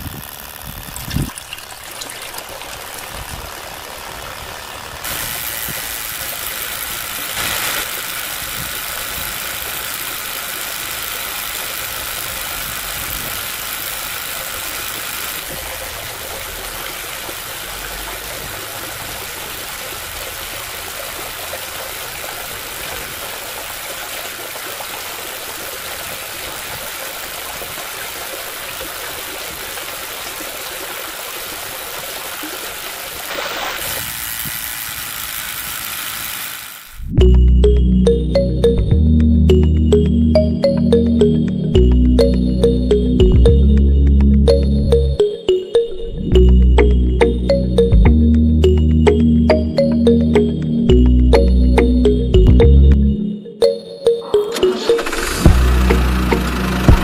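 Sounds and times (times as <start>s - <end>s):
small electric motor running: 0.0s - 37.2s, 54.9s - 57.0s
water running into plastic tank: 0.4s - 5.5s, 14.4s - 34.7s.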